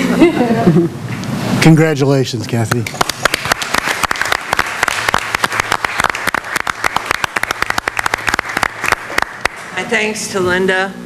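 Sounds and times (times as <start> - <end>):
group applauding: 2.7 - 9.8.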